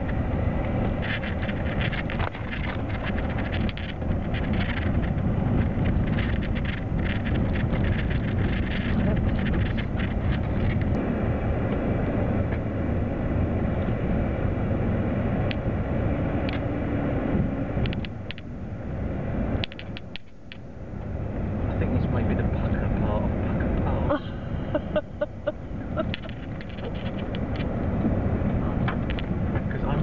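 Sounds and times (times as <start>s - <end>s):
rattling and clicking: 0.0s - 11.0s, 23.5s - 30.0s
vehicle engine and tyre noise: 0.0s - 30.0s.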